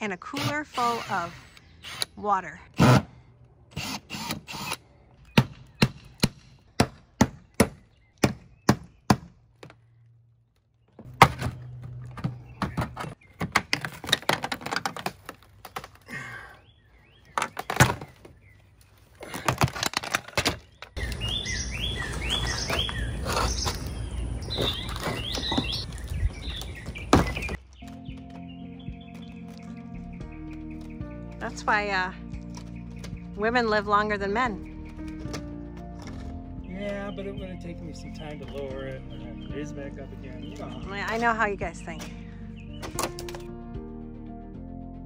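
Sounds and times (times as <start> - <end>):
outdoor background noise: 0.0 - 43.6
bird chirping: 4.6 - 13.8, 16.0 - 19.1, 20.5 - 43.1.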